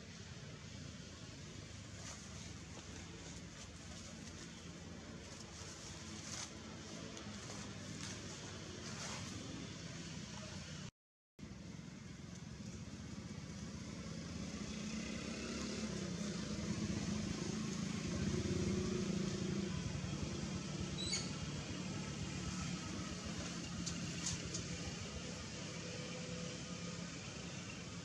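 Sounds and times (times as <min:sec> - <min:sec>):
motor vehicle humming: 0:11.6 - 0:28.0.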